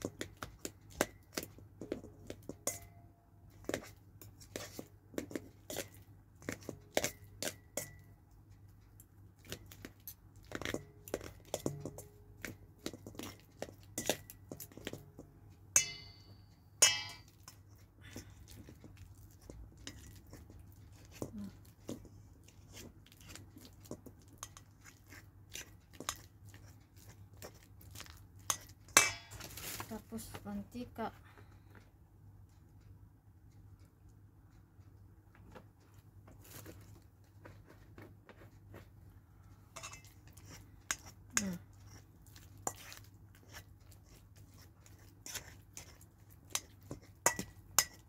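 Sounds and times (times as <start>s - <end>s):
fork scraping metal bowl: 39.8s - 48.0s.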